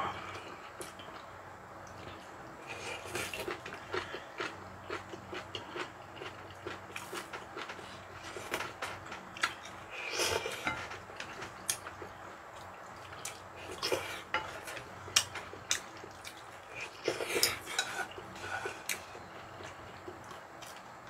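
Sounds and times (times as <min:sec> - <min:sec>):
utensils scraping bowls: 0:16.8 - 0:19.0.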